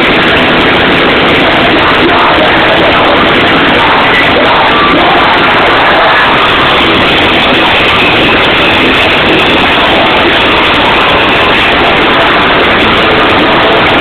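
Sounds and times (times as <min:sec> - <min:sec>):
distorted punk band playing: 0:00.0 - 0:14.0.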